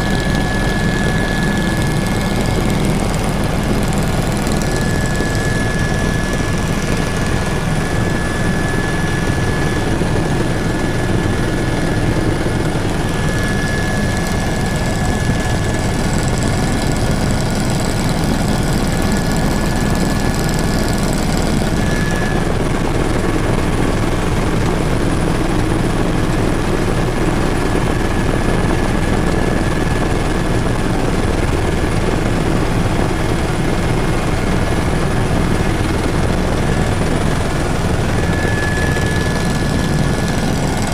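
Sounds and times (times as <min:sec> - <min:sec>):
helicopter rotor and engine drone: 0:00.0 - 0:40.9
thin high whine: 0:37.1 - 0:40.9.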